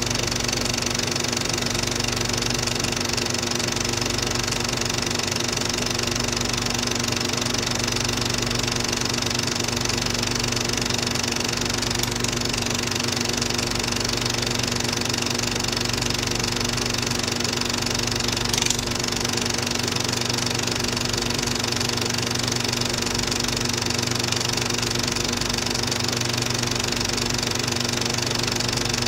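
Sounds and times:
film projector running: 0:00.0 - 0:29.0
loud click: 0:18.4 - 0:19.0.

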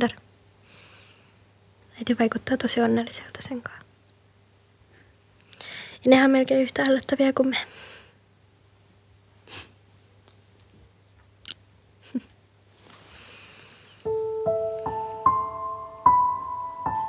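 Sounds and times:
faint small noises: 0:00.0 - 0:17.0
piano playing slow notes: 0:14.0 - 0:17.0.

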